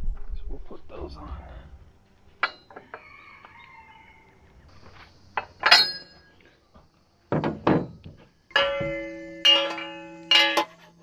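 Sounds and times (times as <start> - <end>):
metal tools clinking: 2.4 - 3.1, 5.4 - 6.4, 7.6 - 11.0.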